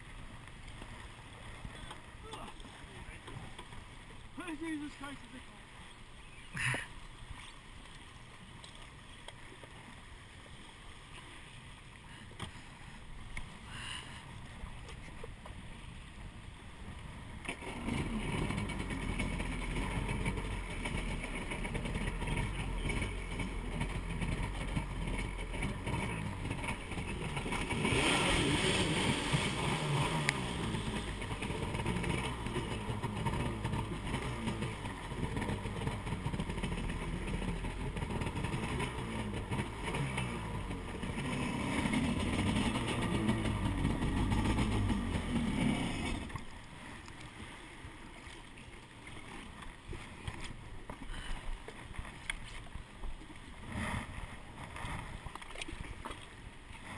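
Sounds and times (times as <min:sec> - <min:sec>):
jet ski engine revving: 0:12.2 - 0:47.6, 0:53.5 - 0:56.9.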